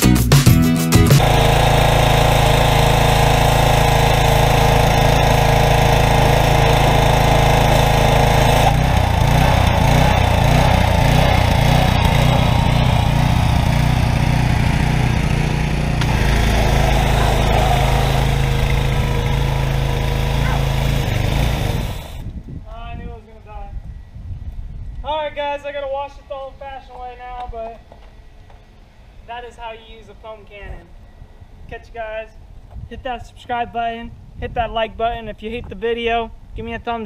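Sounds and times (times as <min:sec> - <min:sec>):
small gasoline engine running: 0:01.0 - 0:22.2
water jet hissing: 0:15.9 - 0:22.2.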